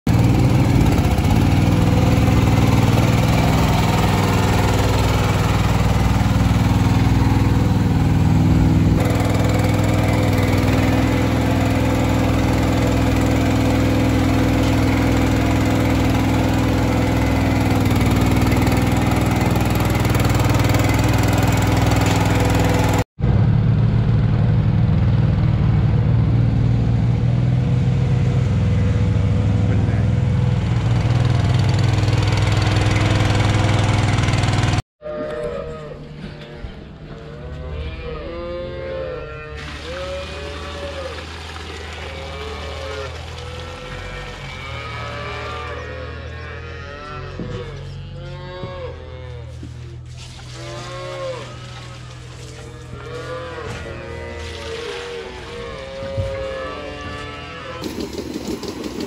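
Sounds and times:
small engine humming: 0:00.1 - 0:23.1, 0:49.6 - 0:59.0.

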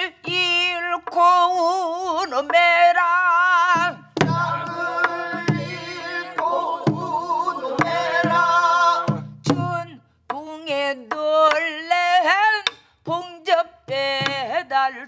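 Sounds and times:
barrel drum beats: 0:00.0 - 0:14.8
voices singing together: 0:03.5 - 0:09.7.

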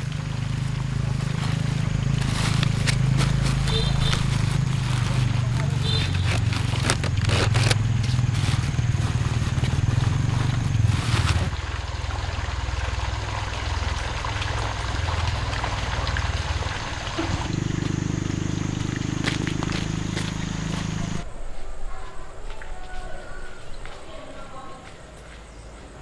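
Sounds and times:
higher hum: 0:00.0 - 0:11.8, 0:16.3 - 0:25.5
motor humming: 0:00.0 - 0:12.1, 0:16.3 - 0:21.2.

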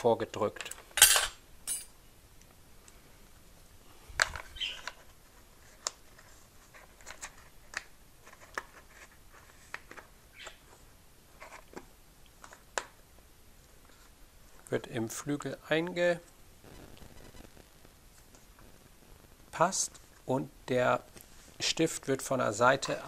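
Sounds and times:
small clicks and scrapes: 0:04.2 - 0:12.9.

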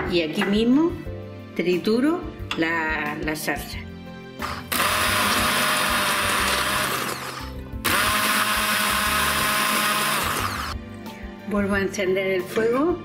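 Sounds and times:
immersion blender running: 0:04.4 - 0:10.8.

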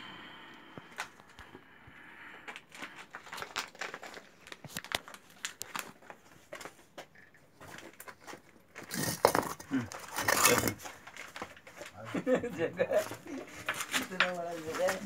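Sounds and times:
rustling and crackling: 0:02.3 - 0:12.3, 0:12.9 - 0:15.0.

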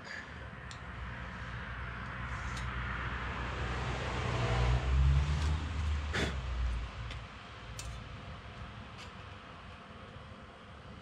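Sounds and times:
vehicle engine rumble passing: 0:00.5 - 0:09.0.

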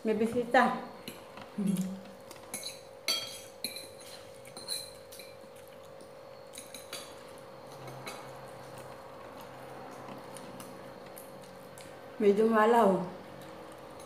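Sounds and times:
tableware clinking on plates: 0:02.5 - 0:05.4.

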